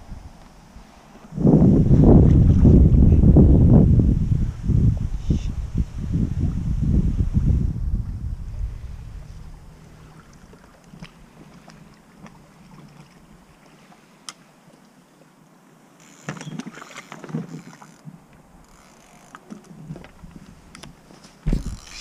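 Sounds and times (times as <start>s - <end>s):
water splashing around boat: 6.3s - 15.3s, 16.1s - 22.0s
heavy thump: 21.5s - 21.8s
splashy knocks on boat: 21.5s - 21.8s.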